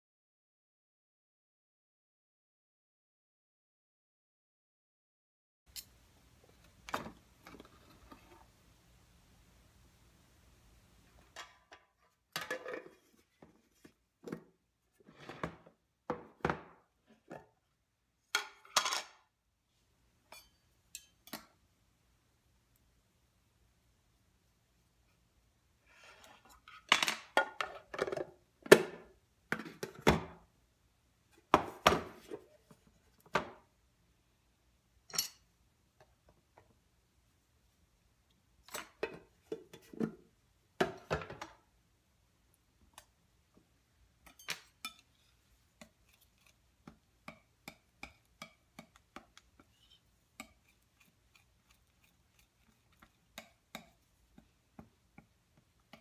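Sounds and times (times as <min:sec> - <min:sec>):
palette knives clinking on tins: 0:44.2 - 0:45.1.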